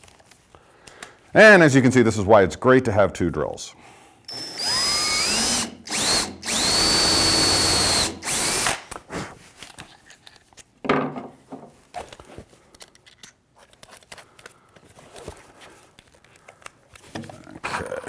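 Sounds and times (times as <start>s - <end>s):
cordless drill whining: 4.3s - 8.8s.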